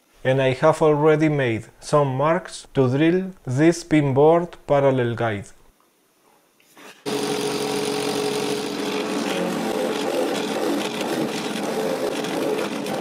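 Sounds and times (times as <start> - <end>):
drill press boring into wood: 7.1 - 13.0.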